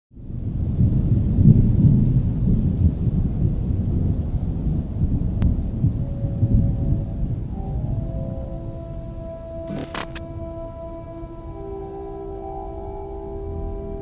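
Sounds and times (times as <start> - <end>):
soft sustained music tones: 5.4 - 14.0
sharp click: 9.7 - 10.2.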